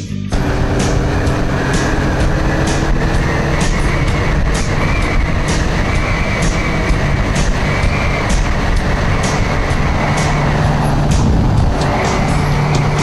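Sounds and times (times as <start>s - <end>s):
motorcycle engine: 0.3s - 13.0s
road rumble: 0.3s - 13.0s
wind noise: 0.4s - 13.0s.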